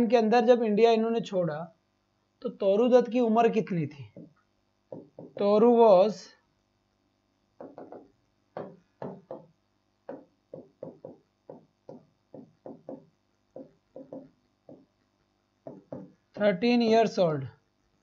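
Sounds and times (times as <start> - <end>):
chalk tapping on blackboard: 4.1 - 5.6, 7.6 - 16.6.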